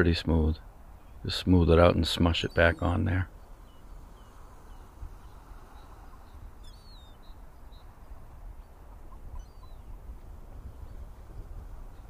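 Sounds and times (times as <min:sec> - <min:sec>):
high bird chirps: 0:02.4 - 0:08.2, 0:09.2 - 0:09.9.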